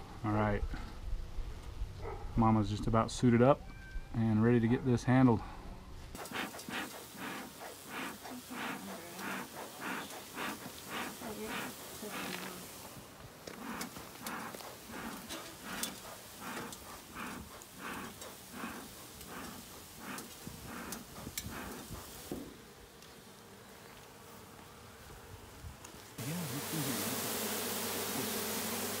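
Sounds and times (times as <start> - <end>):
bee smoker bellows puffing: 6.1 - 29.0
loud hum of honeybees: 6.2 - 29.0.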